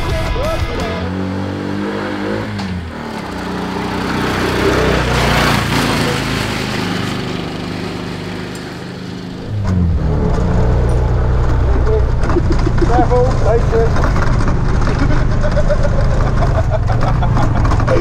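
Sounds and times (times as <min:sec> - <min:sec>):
auto-rickshaw engine passing: 0:02.2 - 0:18.0.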